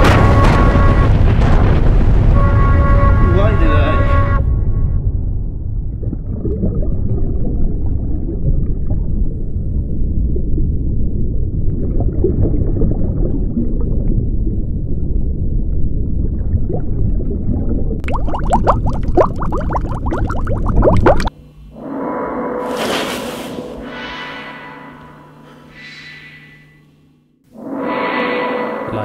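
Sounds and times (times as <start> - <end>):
muffled underwater rumble: 0.0 - 21.7
water gurgling: 5.9 - 21.4.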